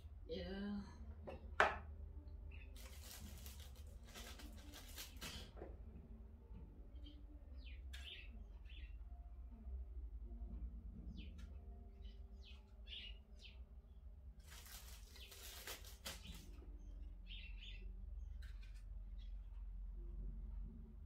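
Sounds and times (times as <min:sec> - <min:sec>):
low steady hum: 0:00.0 - 0:14.9, 0:16.2 - 0:21.0
plastic bag crinkling: 0:02.8 - 0:05.5, 0:14.4 - 0:16.5
faint bird chirps: 0:06.9 - 0:09.7, 0:14.8 - 0:19.8.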